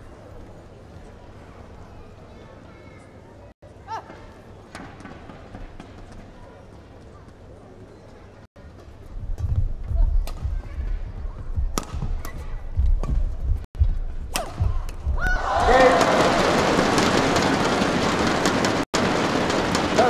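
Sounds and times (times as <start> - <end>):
racket striking shuttlecock: 10.2 - 10.5, 11.7 - 13.3, 14.3 - 15.4
crowd cheering and shouting: 15.0 - 18.2.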